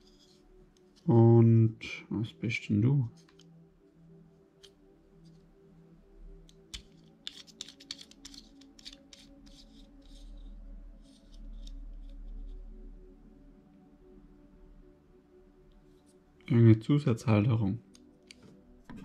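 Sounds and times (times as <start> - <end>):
faint background music: 0.0 - 19.0
packaging crackling and clicking: 6.5 - 9.1.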